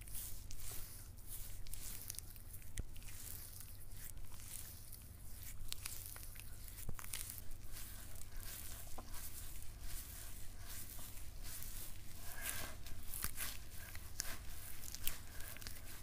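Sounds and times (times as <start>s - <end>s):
hands rubbing wet skin: 0.0s - 16.0s.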